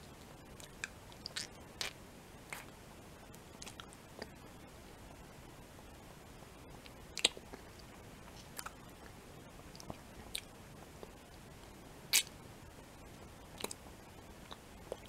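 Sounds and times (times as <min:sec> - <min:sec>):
mouth smacks and clicks: 0:00.6 - 0:02.7, 0:06.8 - 0:11.2, 0:12.1 - 0:12.4, 0:13.6 - 0:15.0.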